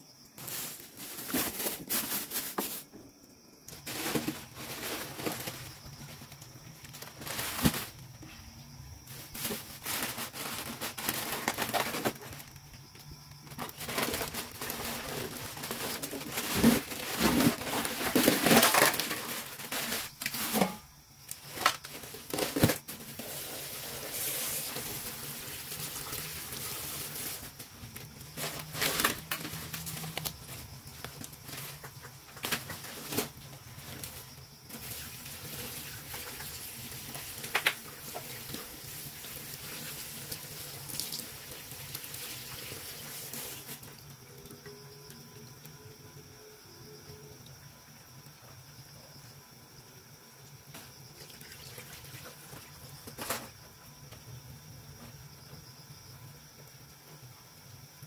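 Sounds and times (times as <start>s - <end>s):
scraping and handling noises: 0.4s - 12.8s, 13.4s - 38.9s, 52.3s - 53.6s.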